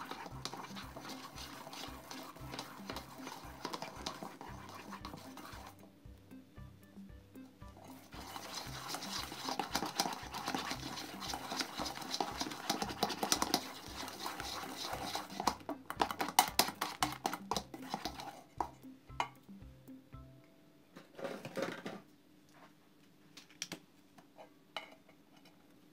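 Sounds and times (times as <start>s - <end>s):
whisk squelching in slime: 0.0s - 5.9s, 7.8s - 18.7s.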